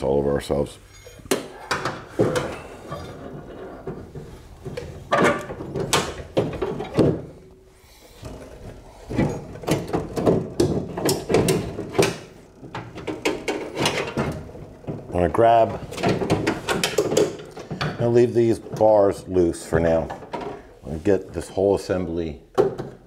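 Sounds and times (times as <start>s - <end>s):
door lock mechanism clicks and rattles: 16.0s - 17.8s.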